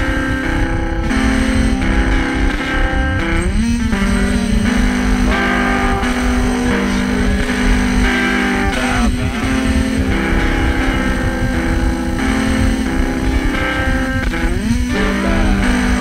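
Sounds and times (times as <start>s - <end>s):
electric guitar chords: 0.0s - 16.0s
noisy low end: 0.0s - 16.0s.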